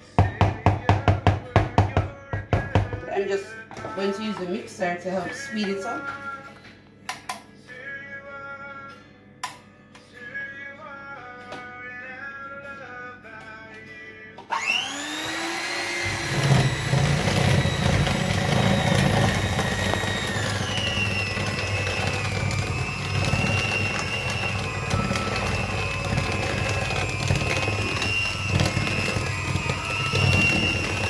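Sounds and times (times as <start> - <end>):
electric mixer whining: 14.5 - 31.0.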